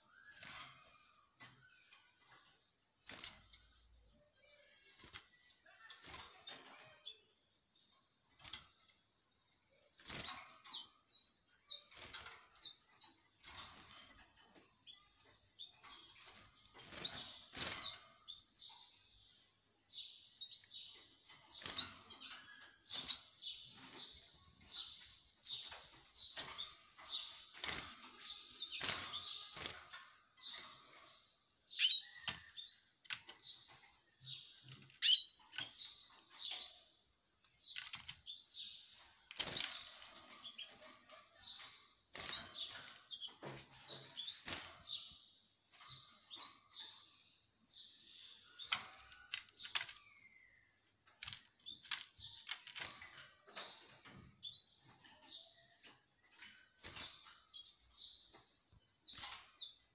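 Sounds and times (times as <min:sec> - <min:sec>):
canaries chirping and twittering: 0:00.0 - 0:59.9.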